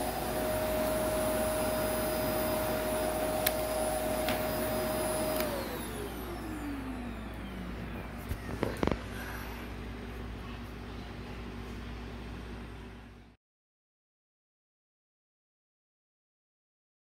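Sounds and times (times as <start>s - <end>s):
vacuum motor spinning down: 0.0s - 10.1s
upright vacuum whining: 0.0s - 10.4s.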